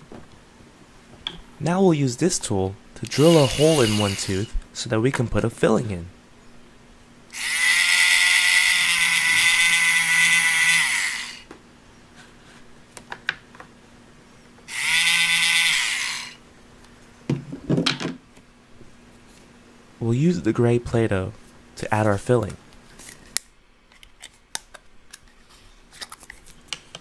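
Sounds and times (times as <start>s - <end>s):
toy drill whirring: 3.0s - 4.5s, 7.3s - 11.5s, 14.7s - 16.4s.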